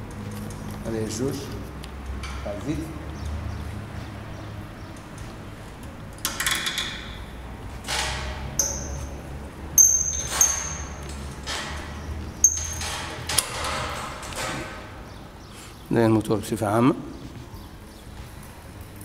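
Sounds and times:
metallic clinks and knocks: 7.9 - 9.2, 9.8 - 14.9.

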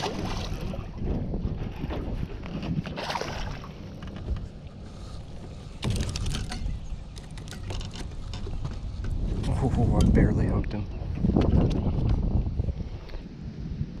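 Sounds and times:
fish flopping on deck: 0.0 - 9.2
wind buffeting microphone: 0.0 - 14.0
thumps: 5.8 - 9.2.

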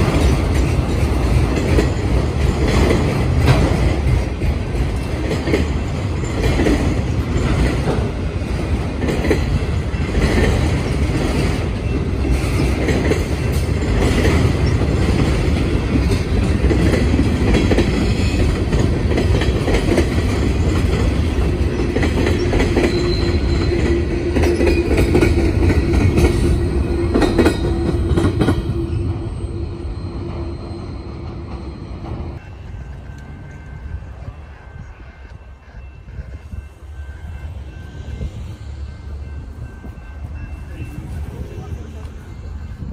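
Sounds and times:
train wheel squeal: 0.0 - 15.2, 16.0 - 42.9
freight train rumbling past: 0.0 - 42.9.

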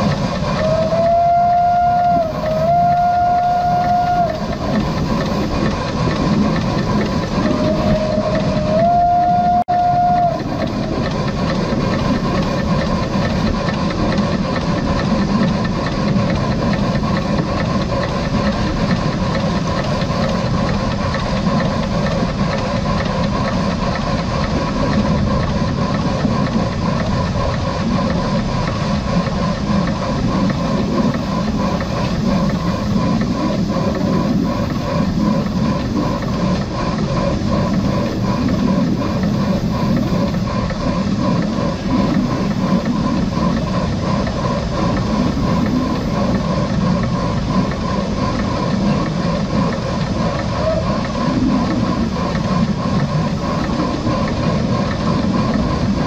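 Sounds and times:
train rumbling along track: 0.0 - 56.0
steam locomotive whistle: 0.5 - 4.8, 7.4 - 11.0, 50.6 - 51.0.

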